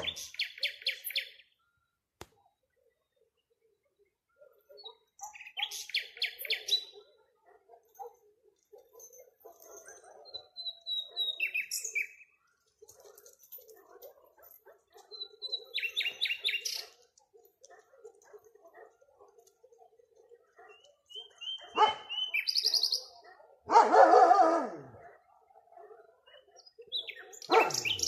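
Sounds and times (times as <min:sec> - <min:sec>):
nightingale singing: 0:00.0 - 0:01.8, 0:04.7 - 0:07.0, 0:10.2 - 0:12.4, 0:15.1 - 0:17.0, 0:20.6 - 0:23.2, 0:26.3 - 0:28.0
dog barking: 0:04.3 - 0:11.6, 0:12.8 - 0:28.0.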